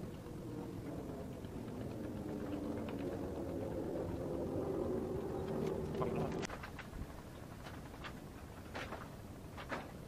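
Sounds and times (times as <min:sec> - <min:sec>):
boat motor humming: 0:00.0 - 0:06.5.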